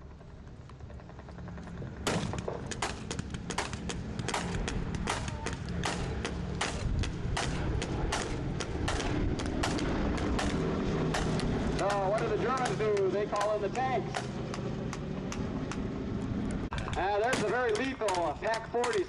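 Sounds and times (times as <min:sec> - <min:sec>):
propeller plane engines droning: 0:00.0 - 0:19.0
gunfire shots: 0:02.0 - 0:14.6, 0:17.2 - 0:19.0.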